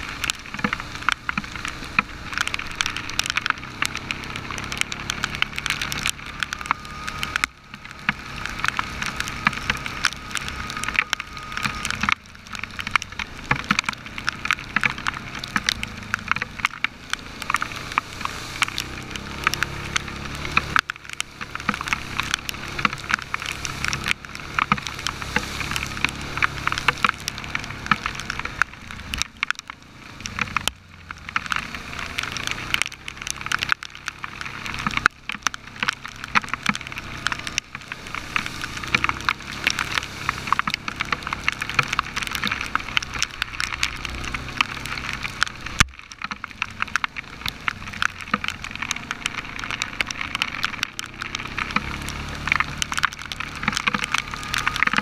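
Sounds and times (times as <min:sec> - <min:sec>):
atv engine running: 0:00.0 - 0:55.0
heavy rain striking camera: 0:00.0 - 0:55.0.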